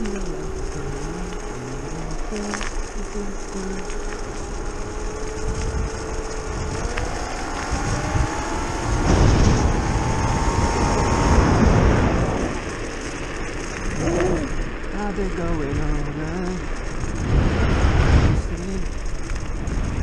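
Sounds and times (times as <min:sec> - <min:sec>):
tyre rumble: 0:00.0 - 0:14.9
electric motor whining: 0:00.0 - 0:20.0
wind rush on microphone: 0:00.0 - 0:20.0.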